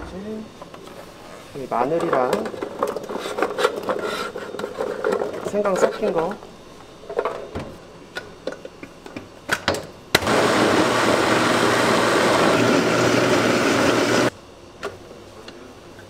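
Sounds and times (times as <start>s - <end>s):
blender running: 10.2s - 14.3s.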